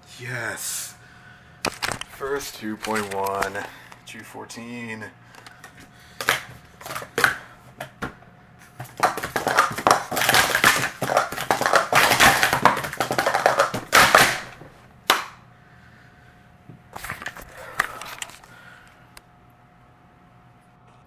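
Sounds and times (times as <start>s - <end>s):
hands slapping timer pads: 5.6s - 15.4s
plastic cups clattering on a mat: 8.8s - 14.6s.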